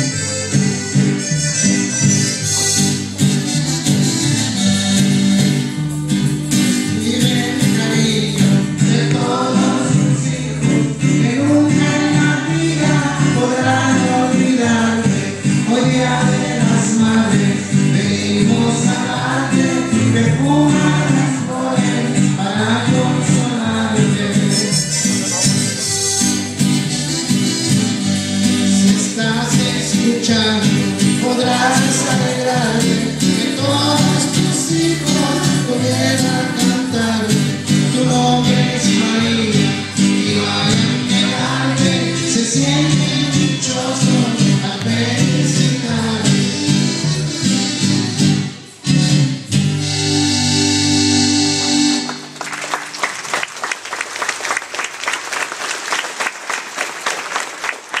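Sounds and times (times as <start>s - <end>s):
guitar and bass music: 0.0s - 52.4s
person singing: 6.7s - 25.8s, 28.6s - 47.3s
congregation clapping: 52.0s - 58.0s.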